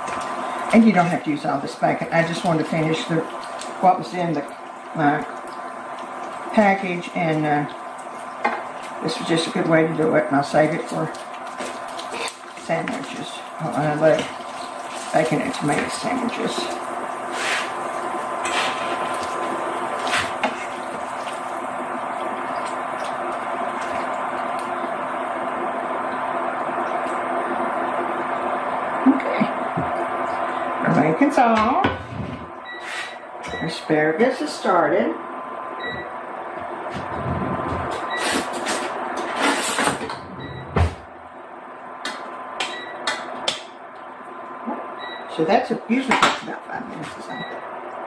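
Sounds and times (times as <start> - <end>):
bacon sizzling in a frying pan: 0.0 - 31.0.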